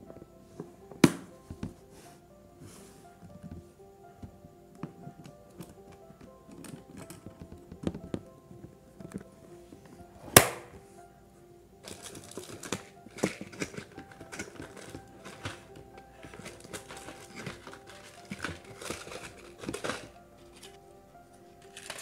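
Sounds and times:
soft background music: 0.0 - 22.0
case clacking shut: 0.9 - 1.8, 11.8 - 20.8
plastic trays and cellophane crinkling: 11.8 - 22.0.

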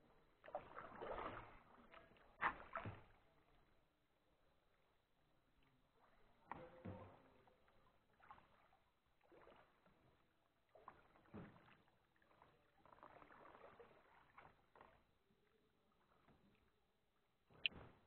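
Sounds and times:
paddle splashing in water: 0.2 - 3.7, 6.0 - 15.2.

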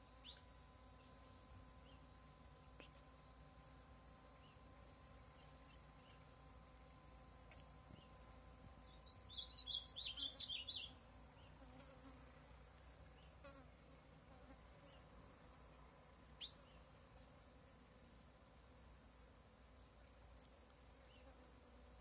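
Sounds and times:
bird singing warbling phrase: 9.1 - 11.0.

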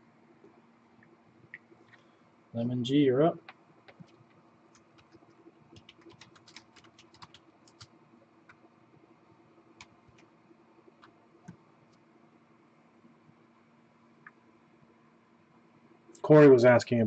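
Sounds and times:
low steady hum: 0.0 - 17.0
typing on a keyboard: 3.4 - 8.6, 9.8 - 10.3.

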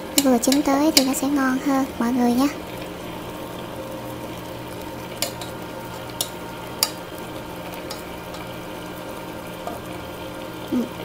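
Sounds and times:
chopsticks stirring greens in pot: 0.0 - 10.2
chopsticks clicking against pot: 0.2 - 1.2, 5.2 - 7.0, 7.8 - 8.5.

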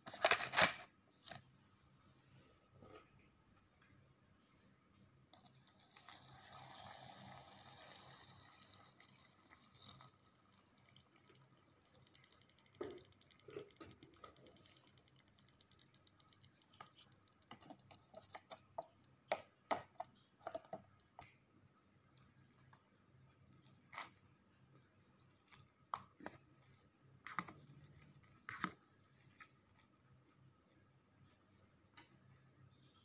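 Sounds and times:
water pouring into paper cup: 5.4 - 18.6, 22.0 - 30.9.

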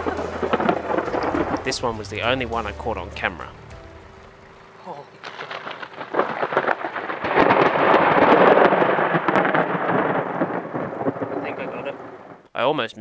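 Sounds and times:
rolling thunder: 0.0 - 2.8, 5.2 - 12.4.

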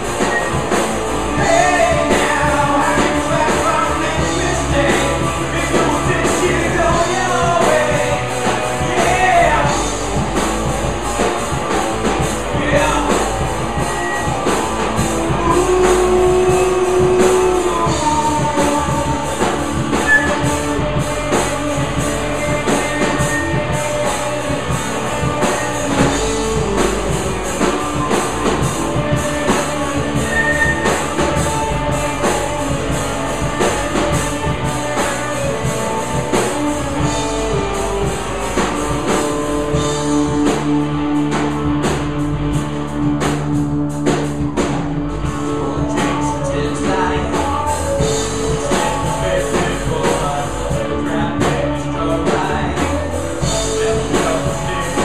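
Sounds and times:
rock band playing: 0.0 - 55.0.

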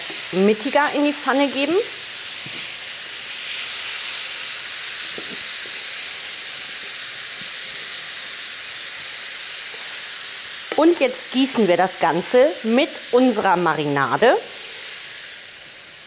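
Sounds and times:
food sizzling in frying pan: 0.0 - 16.0.

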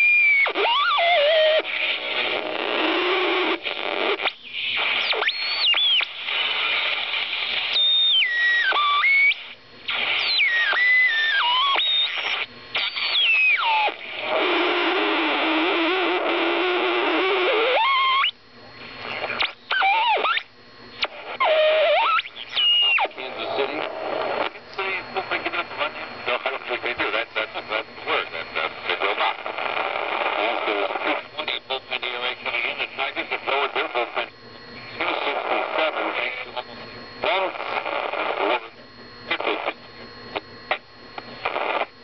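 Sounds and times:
radio whistling tones sliding: 0.0 - 18.4, 19.0 - 31.3
radio static hiss: 0.0 - 42.0.

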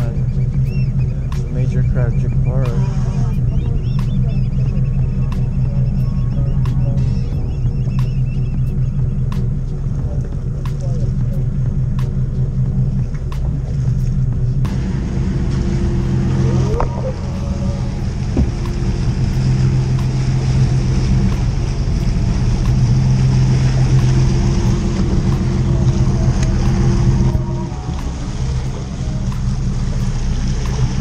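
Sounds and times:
boat engine droning: 0.0 - 31.0
rushing water: 0.0 - 31.0
wind: 0.0 - 31.0.

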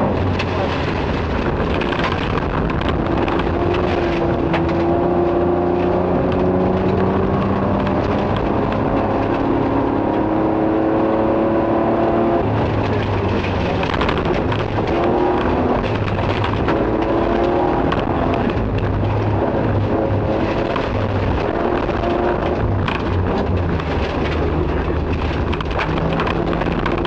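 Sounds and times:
gravel noise under car: 0.0 - 9.5, 12.4 - 27.0
rally car engine pulling hard: 0.0 - 27.0
stones ticking against car: 12.7 - 27.0.

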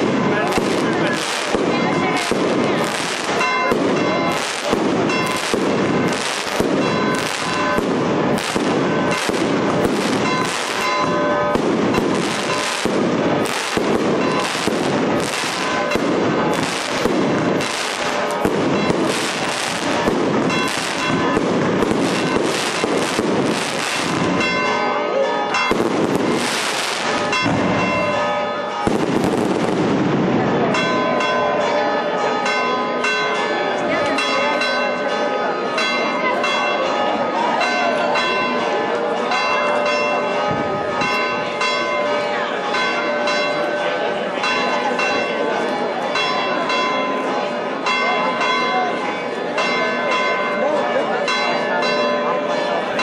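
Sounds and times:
fireworks bangs: 0.0 - 31.2
bells ringing: 0.0 - 53.0.

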